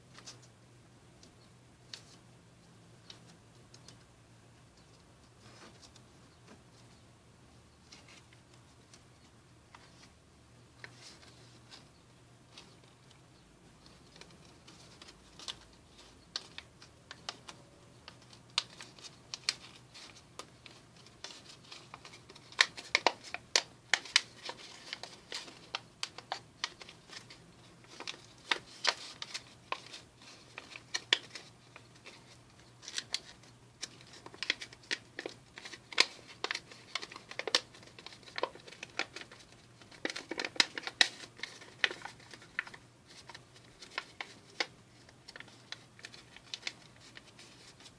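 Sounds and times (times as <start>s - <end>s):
paper crinkling: 13.8s - 47.9s.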